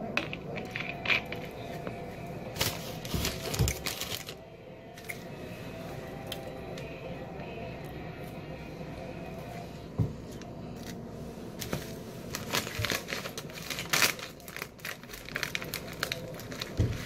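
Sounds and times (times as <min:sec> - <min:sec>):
chip bag crinkling: 0:02.5 - 0:04.4, 0:11.8 - 0:17.0.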